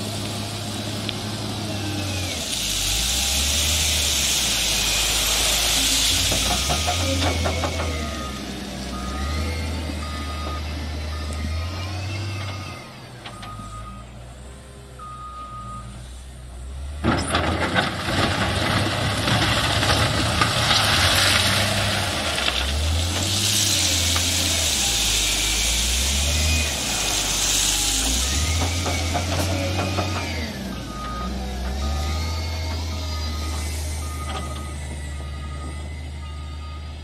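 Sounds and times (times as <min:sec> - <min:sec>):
diesel engine running: 0:00.0 - 0:37.0
reversing alarm beeping: 0:06.5 - 0:14.1, 0:15.0 - 0:16.0, 0:24.5 - 0:26.8, 0:29.9 - 0:37.0.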